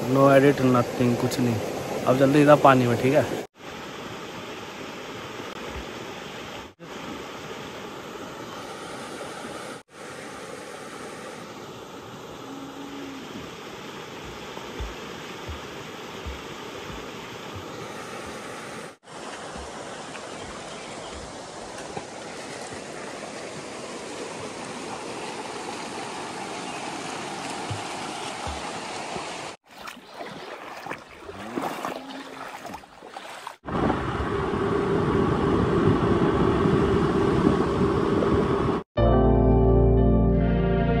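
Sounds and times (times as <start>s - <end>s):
river water rushing over stones: 0.0s - 34.0s
wind on microphone: 33.7s - 38.8s.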